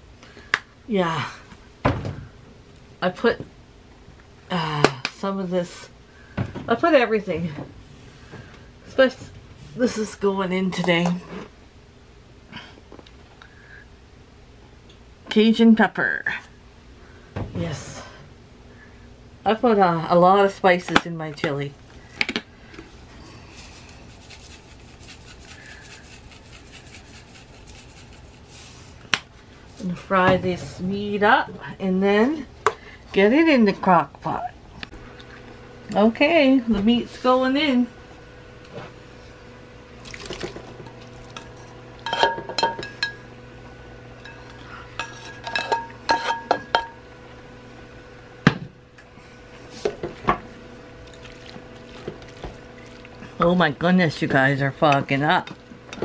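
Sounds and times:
spice jar shaking rattle: 0:24.1 - 0:28.5.

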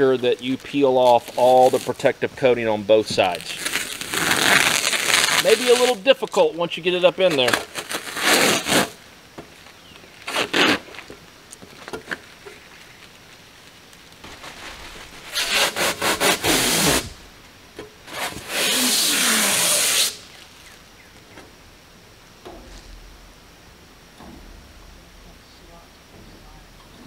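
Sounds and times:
plastic film ripping off panel: 0:00.5 - 0:02.1, 0:03.2 - 0:06.5, 0:07.1 - 0:09.0, 0:09.7 - 0:17.4, 0:18.0 - 0:20.8.

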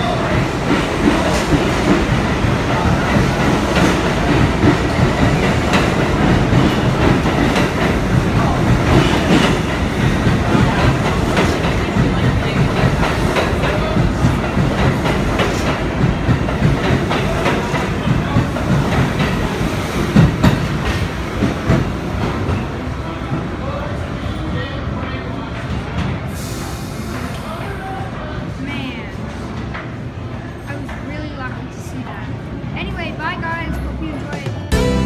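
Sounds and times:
subway train wheels clacking: 0:00.0 - 0:35.0.

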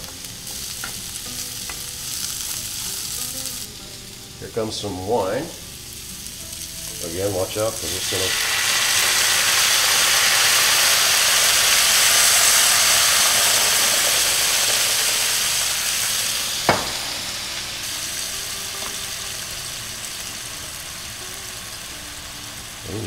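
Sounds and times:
wine sizzling in hot skillet: 0:00.0 - 0:23.0
sharp knock: 0:16.6 - 0:17.3.

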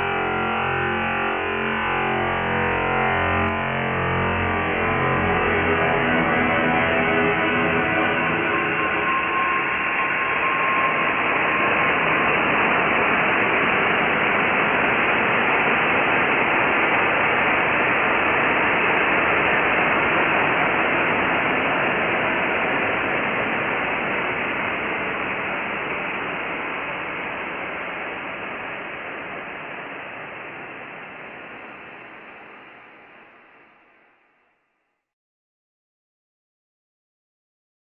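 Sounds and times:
faint tone: 0:00.0 - 0:15.2
slowed modem static hiss: 0:00.0 - 0:35.0.

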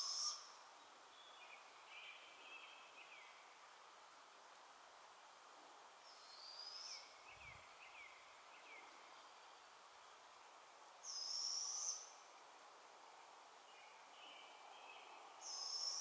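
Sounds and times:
owl screeching calls: 0:00.0 - 0:00.4.

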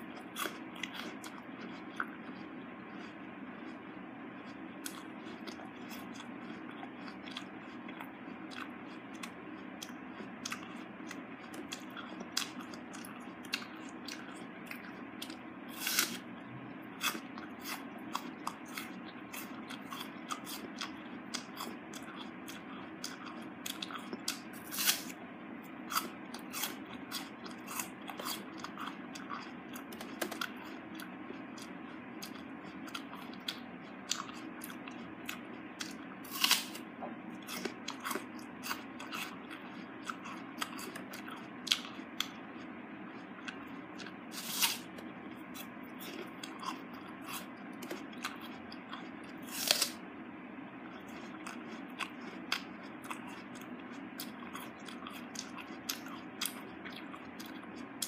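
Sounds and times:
apple crunching and chewing: 0:00.0 - 0:50.1, 0:50.8 - 0:58.0
steady low hum: 0:00.0 - 0:58.0
loud apple bites: 0:11.5 - 0:16.3, 0:23.0 - 0:25.2, 0:25.9 - 0:36.8, 0:43.5 - 0:45.0, 0:45.6 - 0:50.0.

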